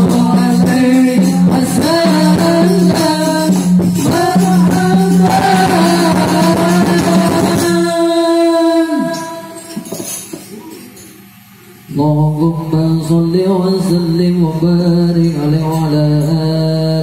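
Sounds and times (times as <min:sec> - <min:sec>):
musical accompaniment: 0:00.0 - 0:09.8
devotional singing over pa: 0:00.0 - 0:10.2, 0:11.9 - 0:17.0.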